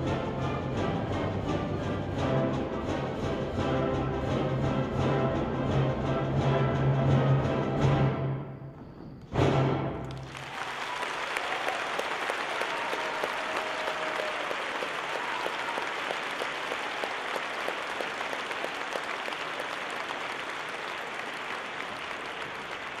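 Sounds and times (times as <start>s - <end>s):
audience applauding: 10.0s - 23.0s.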